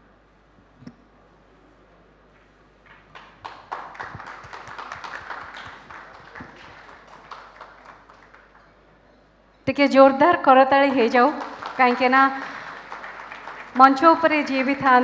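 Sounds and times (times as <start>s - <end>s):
audience applauding: 2.9s - 8.9s, 10.9s - 15.0s.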